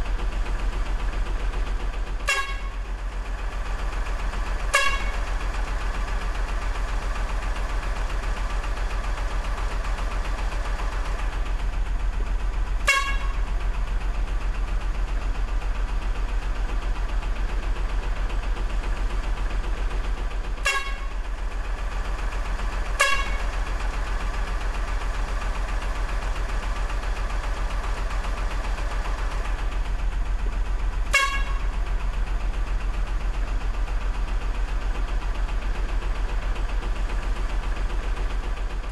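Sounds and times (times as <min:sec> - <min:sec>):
short horn toots: 0:02.2 - 0:02.7, 0:04.7 - 0:05.2, 0:12.8 - 0:13.4, 0:20.6 - 0:21.1, 0:23.0 - 0:23.4, 0:31.1 - 0:31.6.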